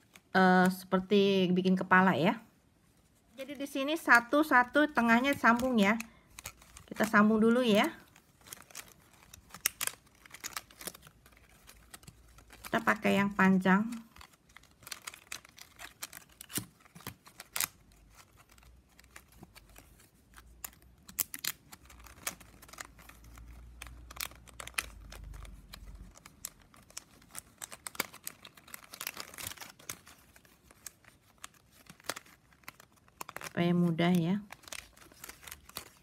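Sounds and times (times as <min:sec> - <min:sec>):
plastic strapping crinkling and clicking: 0:00.0 - 0:01.0, 0:03.2 - 0:36.0.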